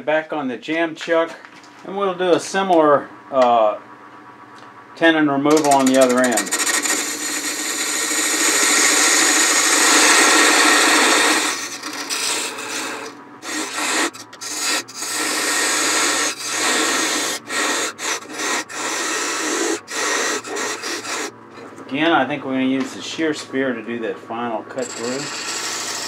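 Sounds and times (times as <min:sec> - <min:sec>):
lathe tool cutting wood: 0:05.6 - 0:21.3, 0:24.7 - 0:26.0.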